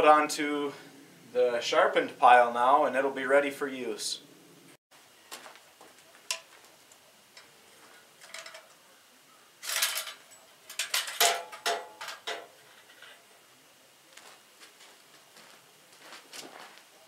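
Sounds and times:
steel blade clinking and rattling: 7.4s - 8.8s, 9.6s - 13.3s.

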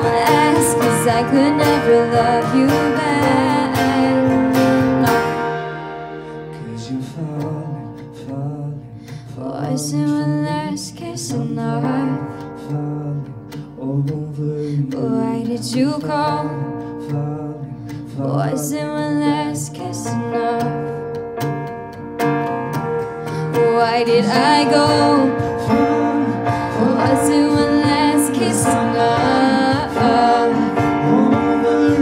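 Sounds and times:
woman singing: 0.0s - 5.6s, 9.2s - 12.5s, 14.5s - 16.7s, 18.1s - 21.0s, 23.4s - 32.0s
drums: 0.0s - 7.8s, 22.8s - 32.0s
keyboard: 0.0s - 9.3s, 11.6s - 32.0s
acoustic guitar: 0.0s - 32.0s.

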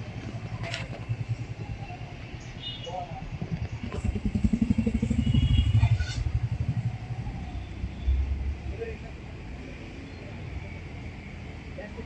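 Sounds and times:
vehicle engine running: 0.0s - 9.0s.

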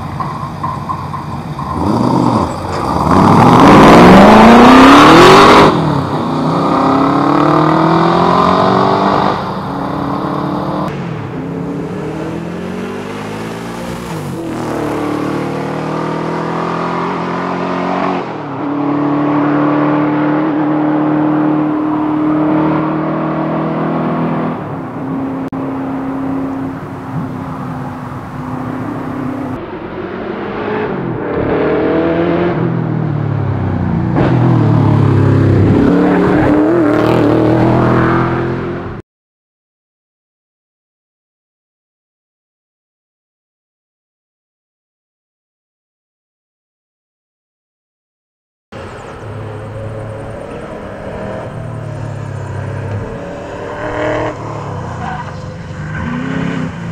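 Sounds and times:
car engine revving: 1.6s - 39.0s, 48.8s - 56.9s.

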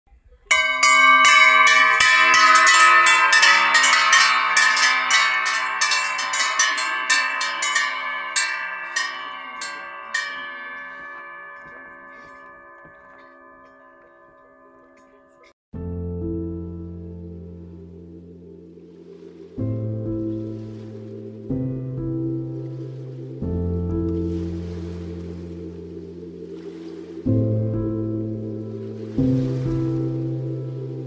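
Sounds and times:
cowbells clanging: 0.4s - 15.6s
bells ringing: 0.5s - 15.6s.

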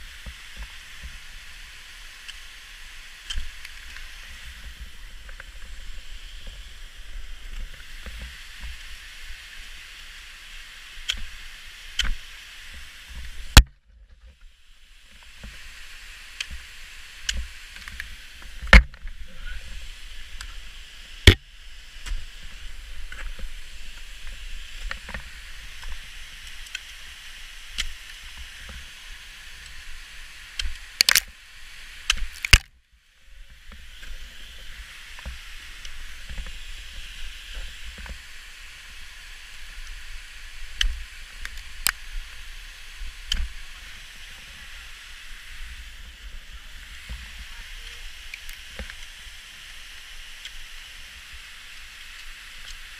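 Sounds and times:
steady hiss: 0.0s - 52.9s
small ticks and knocks: 3.2s - 5.8s, 7.4s - 8.8s, 11.0s - 14.5s, 16.3s - 19.2s, 22.0s - 27.1s, 30.5s - 31.3s, 33.5s - 36.6s, 37.5s - 38.2s, 40.7s - 42.3s, 43.0s - 43.6s, 47.0s - 49.2s
ice axe striking ice: 32.1s - 32.7s.

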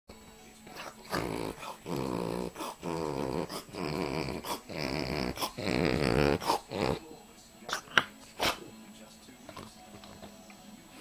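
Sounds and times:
dog snorting: 0.7s - 8.7s.

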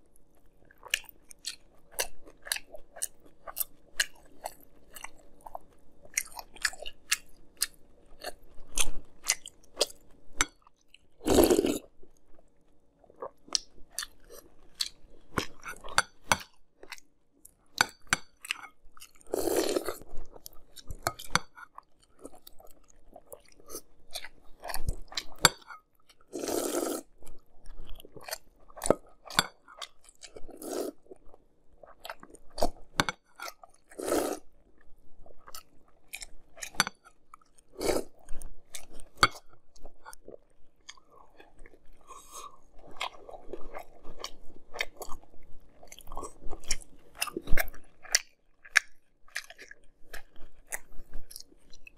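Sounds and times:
person crunching cereal: 11.2s - 11.8s
slurps from spoon: 11.2s - 11.8s, 26.4s - 27.1s, 30.6s - 31.0s, 33.9s - 34.4s.

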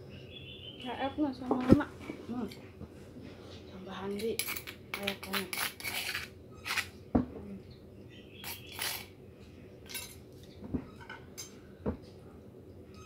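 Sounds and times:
metal spoon clinking on dish: 4.2s - 6.9s, 8.4s - 9.1s, 9.9s - 10.2s, 11.0s - 11.6s
spoon scraping dish: 4.2s - 6.9s, 8.4s - 9.1s.

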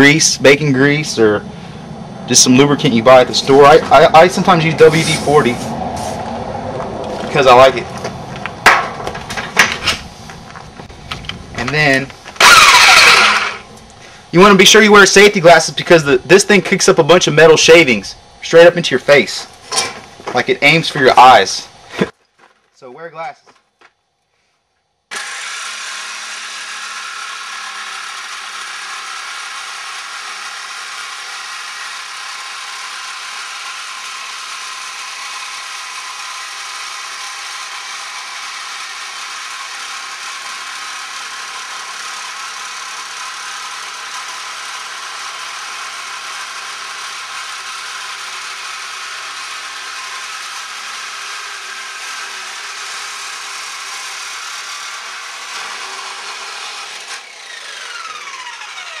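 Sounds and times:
jigsaw cutting sheet metal: 11.8s - 13.8s, 25.1s - 59.0s.

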